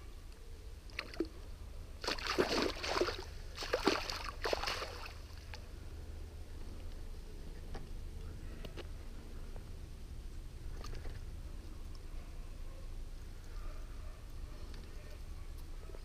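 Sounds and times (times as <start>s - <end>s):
fish splashing in net: 2.0s - 5.4s.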